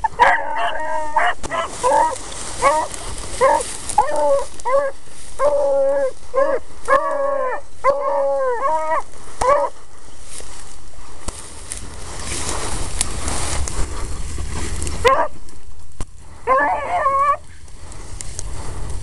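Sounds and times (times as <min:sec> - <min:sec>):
hounds baying: 0:00.0 - 0:09.9, 0:13.4 - 0:15.6, 0:16.4 - 0:17.6.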